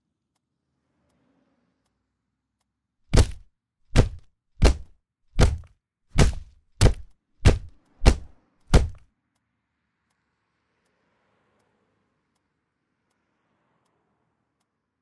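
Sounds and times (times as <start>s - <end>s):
heavy dull thuds of blows: 3.1s - 9.0s.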